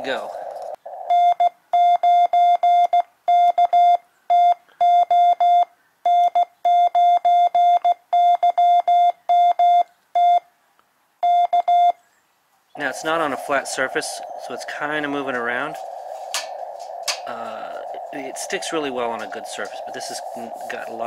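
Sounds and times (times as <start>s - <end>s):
morse code beeps: 1.1s - 10.4s, 11.2s - 12.0s.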